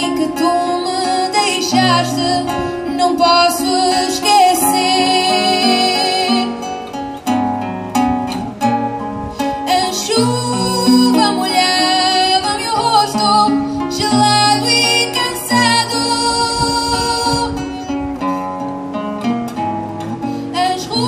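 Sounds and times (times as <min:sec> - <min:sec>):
woman singing: 0:00.0 - 0:07.0, 0:09.4 - 0:17.9, 0:20.4 - 0:21.0
acoustic guitar: 0:00.0 - 0:21.0.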